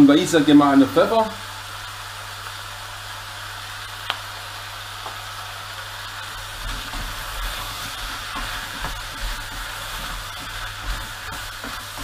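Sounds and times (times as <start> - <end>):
potatoes sizzling in a pot: 0.0 - 12.0
wooden spoon stirring: 6.4 - 12.0.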